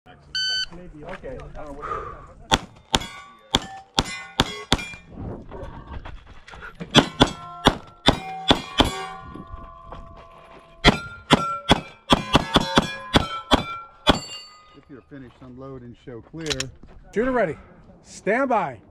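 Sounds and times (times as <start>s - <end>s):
pistol shots: 2.5s - 5.0s, 7.0s - 9.0s, 10.8s - 14.3s
steel plates ringing: 2.7s - 5.2s, 6.9s - 15.0s.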